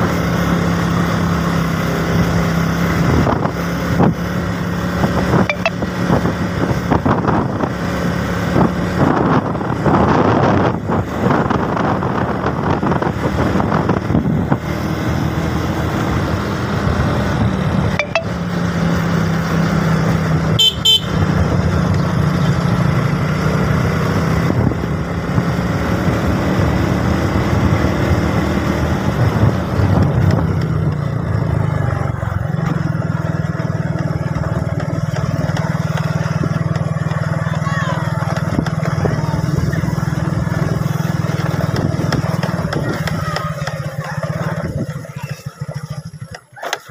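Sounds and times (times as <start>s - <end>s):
motorcycle engine running: 0.0s - 46.9s
high horn beep: 5.4s - 6.0s, 17.9s - 18.6s, 20.6s - 21.4s.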